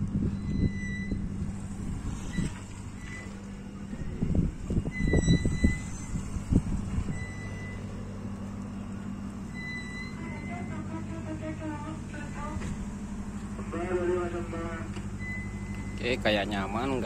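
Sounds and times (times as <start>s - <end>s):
machinery humming: 0.0s - 17.0s
short high beeping tones: 0.3s - 1.2s, 4.9s - 7.9s, 9.5s - 10.8s.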